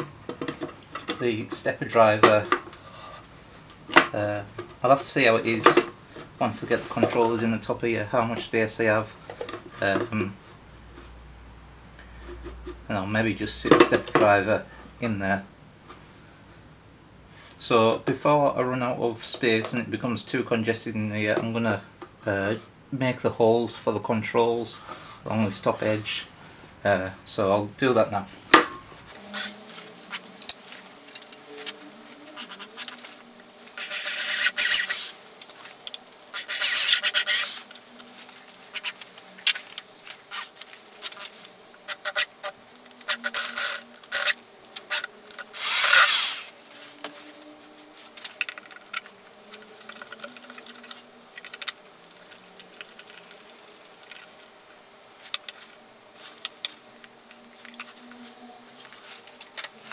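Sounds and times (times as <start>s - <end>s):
power drill cutting plastic: 33.8s - 35.2s, 36.4s - 37.7s, 40.2s - 46.6s.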